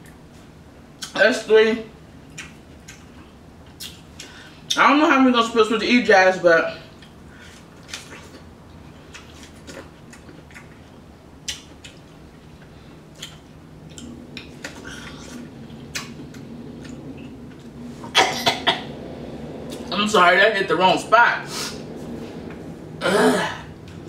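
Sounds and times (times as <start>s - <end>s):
wet mouth clicks and smacks: 2.3s - 3.1s, 3.7s - 4.3s, 11.4s - 17.7s
person biting and chewing: 7.0s - 17.7s.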